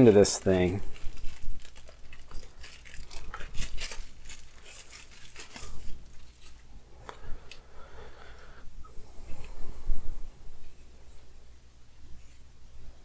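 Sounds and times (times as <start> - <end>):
packaging crinkling and tearing: 0.0 - 6.7.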